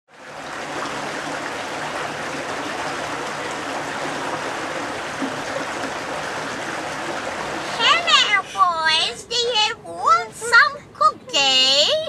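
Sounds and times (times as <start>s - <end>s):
creek flowing over rocks: 0.1s - 8.9s.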